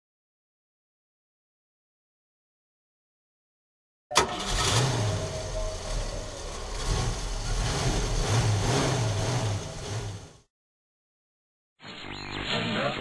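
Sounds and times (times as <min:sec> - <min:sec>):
car engine revving: 0:04.1 - 0:10.5.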